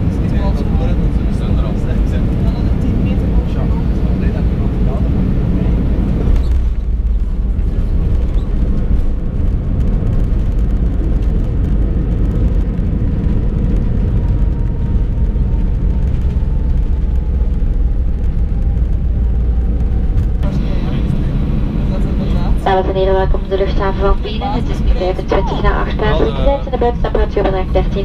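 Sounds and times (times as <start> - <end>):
deep rumble of wheels and air: 0.0 - 28.0
jet engine whine falling in pitch: 13.4 - 28.0.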